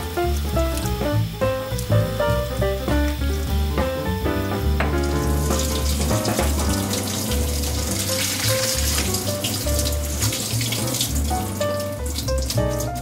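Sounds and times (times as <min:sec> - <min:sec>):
background music with bass line: 0:00.0 - 0:13.0
tap water splashing into strainer: 0:04.8 - 0:13.0.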